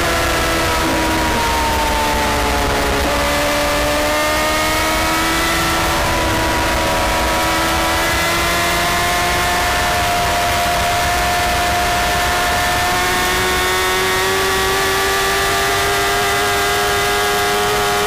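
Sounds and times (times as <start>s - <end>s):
motorbike engine accelerating: 0.0s - 18.0s
wind rush: 0.2s - 8.5s.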